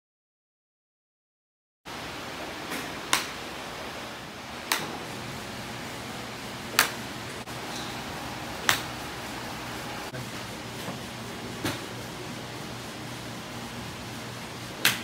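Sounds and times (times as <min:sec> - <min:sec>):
steady background noise: 0:01.9 - 0:15.0
golf clubs striking balls: 0:02.7 - 0:03.5, 0:04.6 - 0:05.4, 0:06.6 - 0:10.1, 0:10.9 - 0:12.0, 0:14.8 - 0:15.0.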